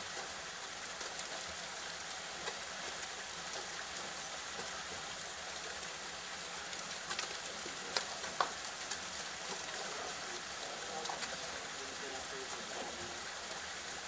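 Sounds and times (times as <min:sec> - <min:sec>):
steady outdoor hiss: 0:00.0 - 0:14.0.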